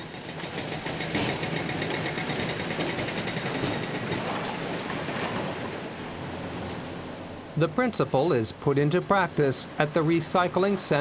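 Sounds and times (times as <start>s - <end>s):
hydraulic breaker hammering concrete: 0.0s - 4.3s.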